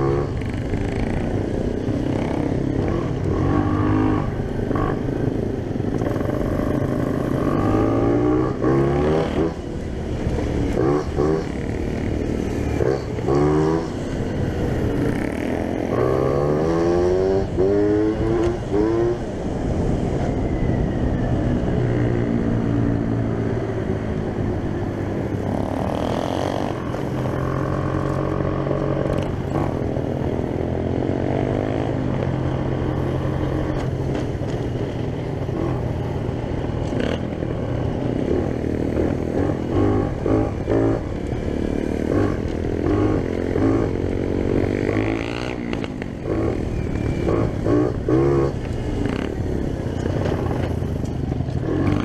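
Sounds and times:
two-stroke scooter engine revving: 36.8s - 52.0s.

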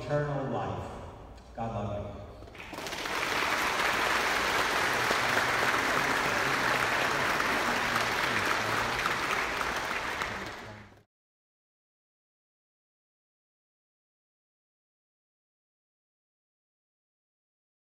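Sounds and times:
congregation applauding: 2.4s - 11.0s.

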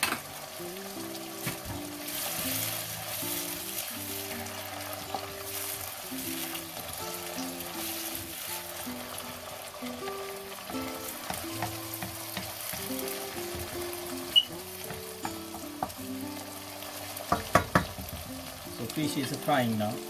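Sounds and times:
food sizzling in oil: 0.0s - 20.0s
wooden spatula scraping: 1.5s - 9.2s
spatula knocking on pan: 10.7s - 16.1s, 17.2s - 18.5s.

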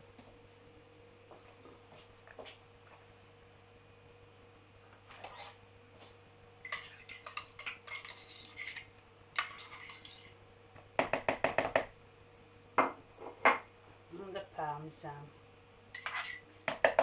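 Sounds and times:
knife scraping cream cheese: 6.7s - 10.4s, 16.0s - 16.4s.

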